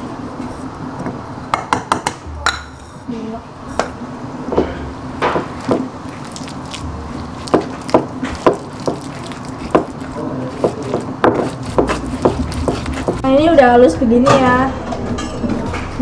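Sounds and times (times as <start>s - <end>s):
stone pestle grinding in mortar: 5.4s - 13.3s.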